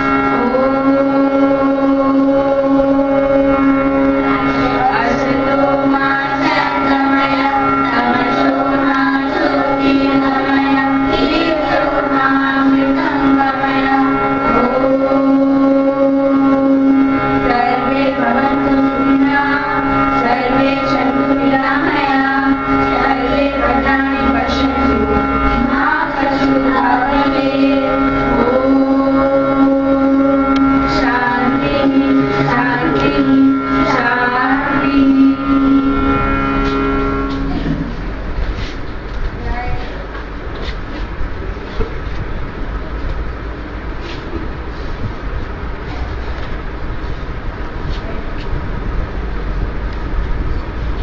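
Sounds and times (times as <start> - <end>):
girls singing a prayer: 0.0 - 37.8
held drone note: 0.0 - 51.0.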